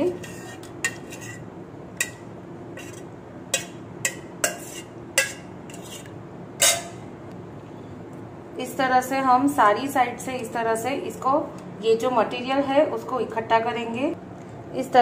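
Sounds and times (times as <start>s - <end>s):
utensils knocking against pot: 2.0s - 2.2s, 3.6s - 6.0s, 6.6s - 7.0s.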